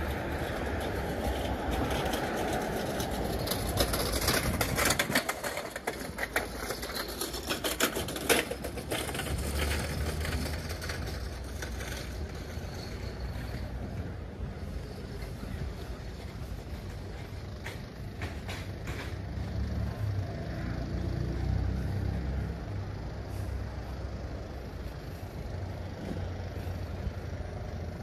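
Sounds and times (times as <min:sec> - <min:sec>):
rapid clicking and rattling: 0:00.0 - 0:13.6
street traffic rumble: 0:00.0 - 0:28.0.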